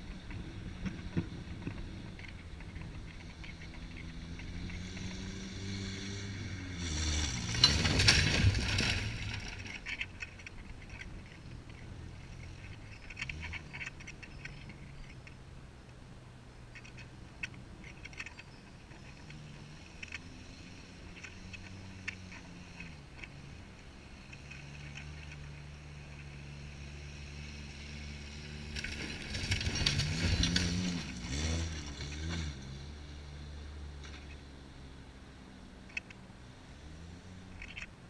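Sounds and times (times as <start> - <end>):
pickup truck engine revving: 3.9 - 9.7, 27.9 - 33.2
brush scraping and crackling: 6.7 - 15.0, 28.3 - 32.7.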